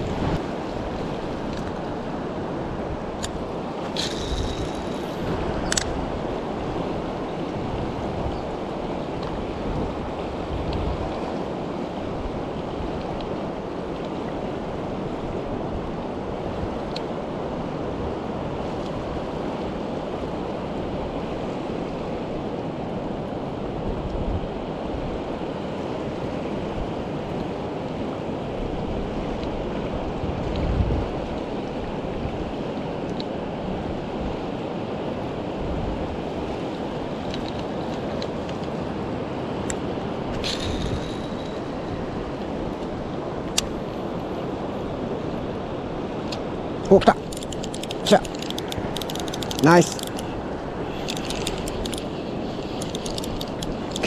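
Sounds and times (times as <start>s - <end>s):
river rushing: 24.6s - 54.0s.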